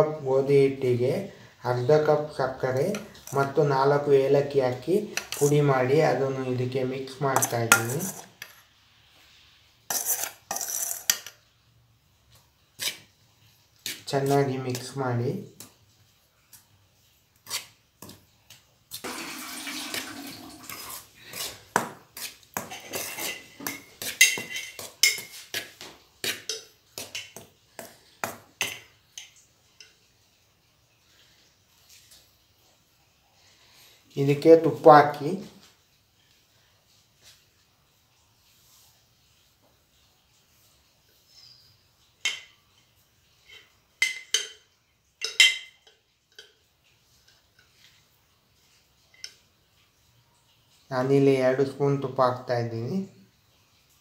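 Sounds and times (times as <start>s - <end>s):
spoon scraping metal pan: 2.6s - 8.7s, 9.9s - 11.5s, 12.8s - 15.0s, 17.4s - 18.2s, 19.7s - 30.0s
steel utensils clinking: 5.1s - 5.8s, 7.3s - 8.6s, 9.9s - 11.5s, 19.9s - 27.4s, 43.4s - 46.6s.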